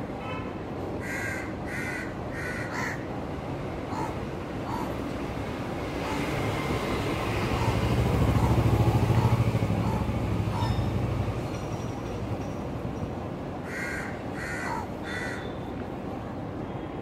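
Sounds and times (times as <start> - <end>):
scooters and motorcycles passing: 5.3 - 11.8.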